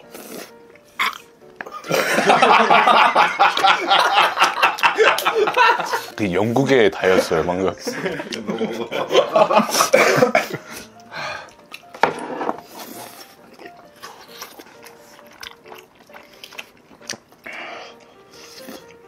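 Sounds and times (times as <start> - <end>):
slurping and chewing: 0.0 - 1.9, 10.8 - 19.0
soft background music: 0.0 - 19.0.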